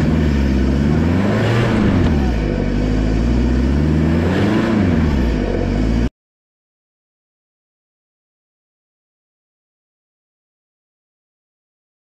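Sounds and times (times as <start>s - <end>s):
diesel engine revving: 0.0s - 6.1s.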